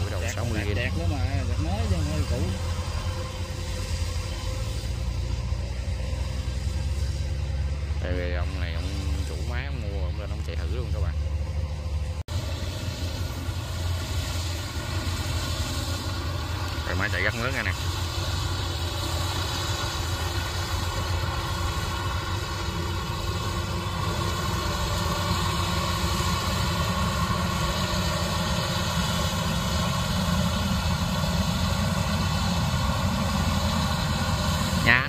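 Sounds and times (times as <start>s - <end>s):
combine harvester droning: 0.0s - 35.0s.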